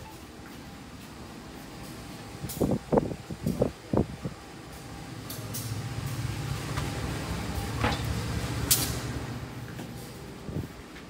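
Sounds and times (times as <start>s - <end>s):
train rumbling: 0.0s - 11.0s.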